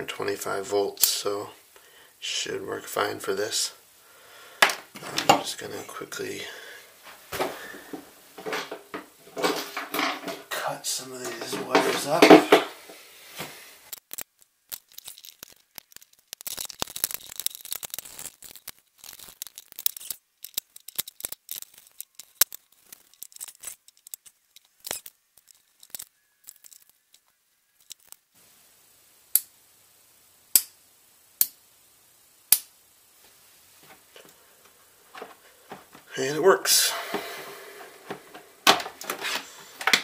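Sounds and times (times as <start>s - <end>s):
wires rustling: 4.6s - 28.3s, 33.2s - 40.0s.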